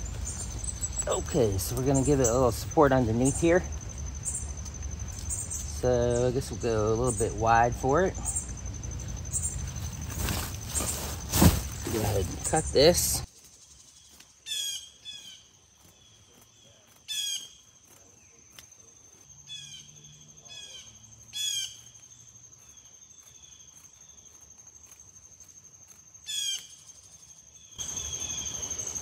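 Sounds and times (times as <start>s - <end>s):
insects trilling: 0.0s - 29.0s.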